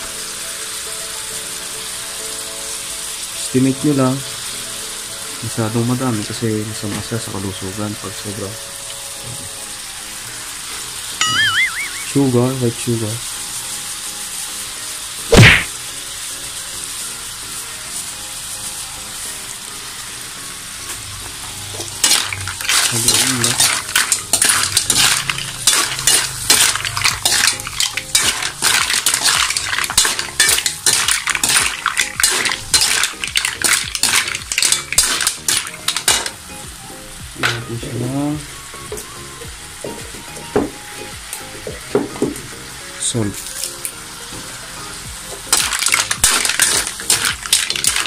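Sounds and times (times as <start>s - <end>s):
sauce sizzling: 0.0s - 48.0s
ladle stirring shells in a wok: 21.7s - 36.4s, 45.4s - 48.0s.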